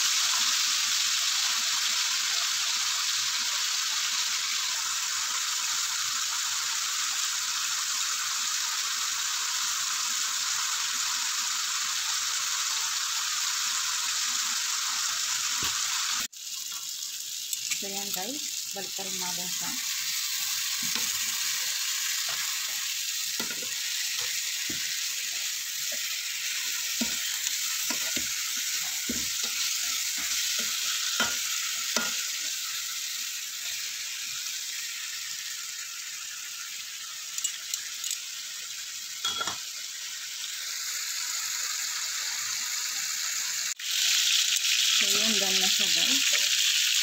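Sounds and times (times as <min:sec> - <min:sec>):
chicken sizzling in oil: 0:00.0 - 0:47.0
metal tongs tapping a pan: 0:23.4 - 0:26.1, 0:26.9 - 0:32.3, 0:39.2 - 0:39.6.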